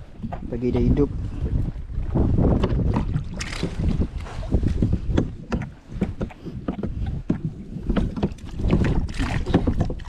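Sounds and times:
knocks and rattles against hull: 0:00.0 - 0:10.0
wind rumble on microphone: 0:00.0 - 0:10.0
water splash: 0:02.5 - 0:06.3, 0:08.0 - 0:10.0.

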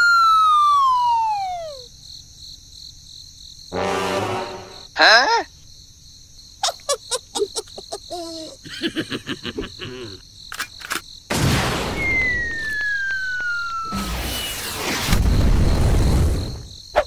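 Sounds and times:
falling bomb whistle: 0:00.0 - 0:01.9, 0:11.8 - 0:16.5
crickets chirping: 0:00.0 - 0:17.0.

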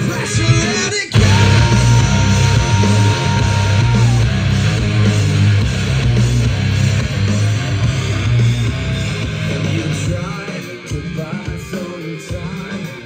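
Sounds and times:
electric guitar: 0:00.0 - 0:13.0
rock music through speaker: 0:00.0 - 0:13.0
bass notes: 0:01.2 - 0:10.2.

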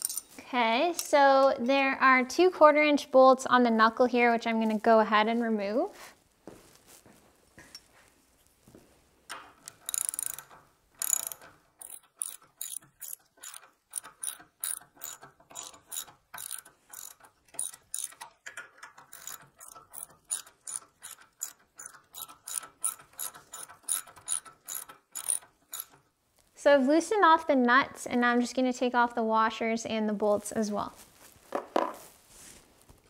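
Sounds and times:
ratchet wrench clicking: 0:09.3 - 0:26.0.

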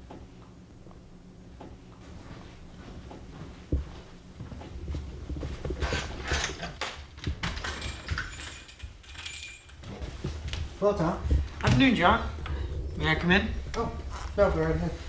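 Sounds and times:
footsteps: 0:01.6 - 0:12.6.

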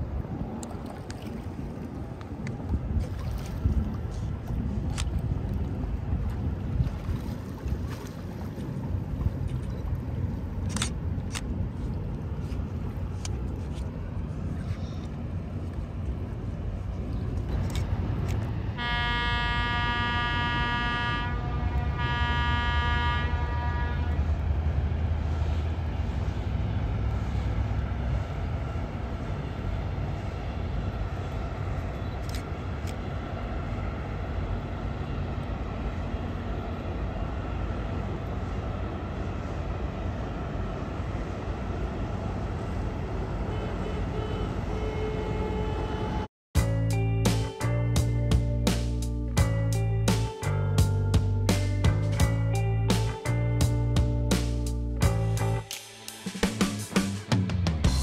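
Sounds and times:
steady low rumble: 0:00.0 - 0:43.5, 0:46.6 - 0:55.7, 0:56.3 - 0:58.0
ship's horn blasts: 0:18.6 - 0:25.8, 0:39.1 - 0:46.3.

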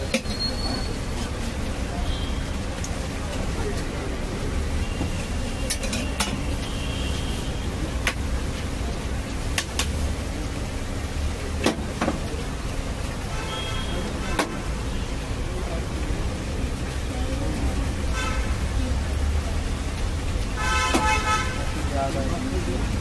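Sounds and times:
steel utensils clicking and tapping: 0:00.0 - 0:00.5, 0:05.6 - 0:06.6.

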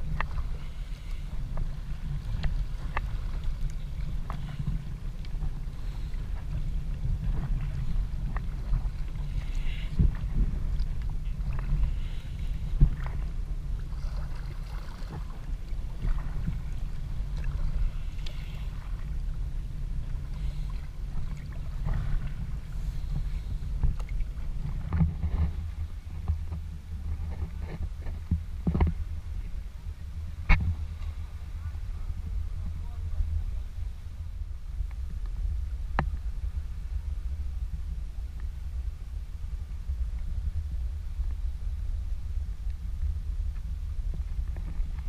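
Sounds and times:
paddle splashes: 0:00.0 - 0:33.1
water slapping hull: 0:00.0 - 0:33.9
low rumble: 0:00.0 - 0:45.0.

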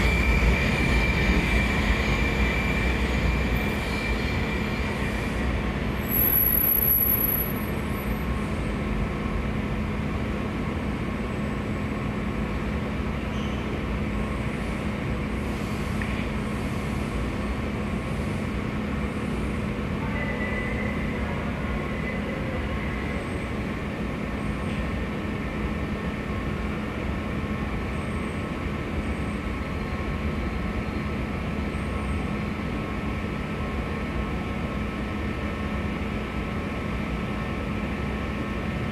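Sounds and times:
high squeal: 0:00.0 - 0:08.2
subway train hum and rumble: 0:00.0 - 0:38.9.

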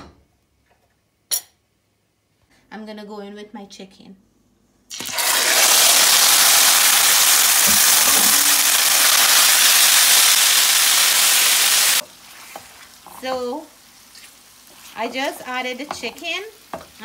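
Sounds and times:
chicken sizzling in a pan: 0:05.0 - 0:17.0.

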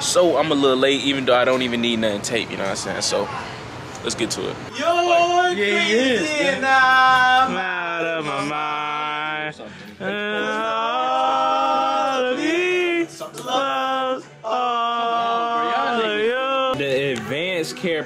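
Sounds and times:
man singing slow melody: 0:04.7 - 0:17.3.

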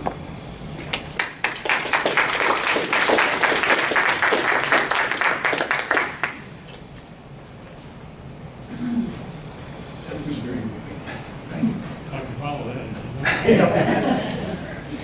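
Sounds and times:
small audience applauding: 0:00.8 - 0:06.5.

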